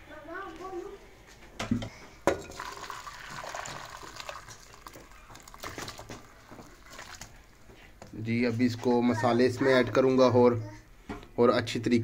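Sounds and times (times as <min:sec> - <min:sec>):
metal pots clanking: 0:01.6 - 0:05.2
broth pouring and splashing: 0:02.4 - 0:07.7.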